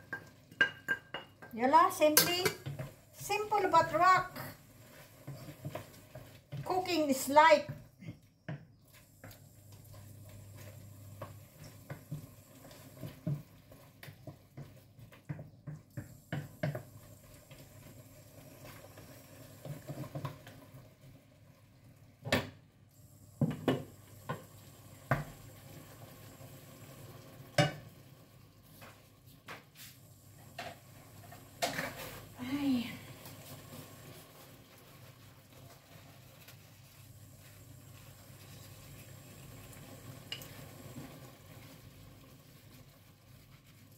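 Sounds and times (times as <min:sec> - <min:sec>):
faint sizzle: 0:00.0 - 0:43.9
spatula scraping a wok: 0:02.2 - 0:07.3, 0:31.3 - 0:32.4.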